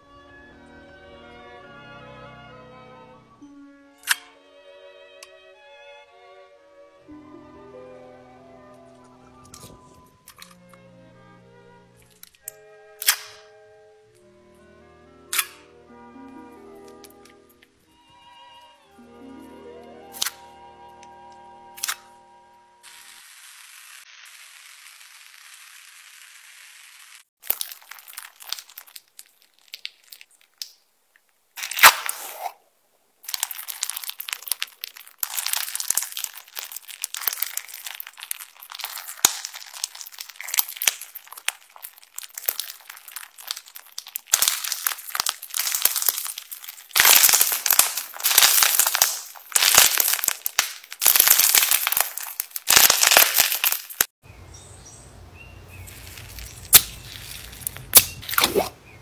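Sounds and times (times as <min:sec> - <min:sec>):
slime crackling and popping: 0:12.1 - 0:13.4, 0:20.1 - 0:20.4, 0:21.8 - 0:22.0, 0:27.1 - 0:30.8, 0:31.6 - 0:32.6, 0:33.2 - 0:54.1, 0:55.7 - 0:58.7.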